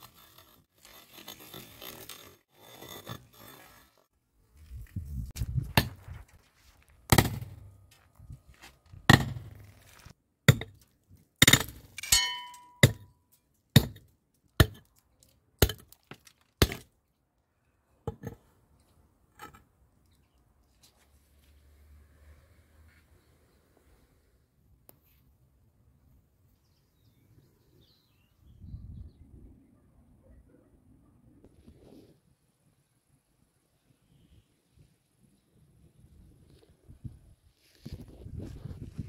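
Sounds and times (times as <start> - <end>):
pickaxe striking concrete: 7.1 - 7.6, 9.1 - 9.7, 10.5 - 10.8, 11.4 - 13.1, 13.8 - 14.9, 15.6 - 15.9, 16.6 - 16.9.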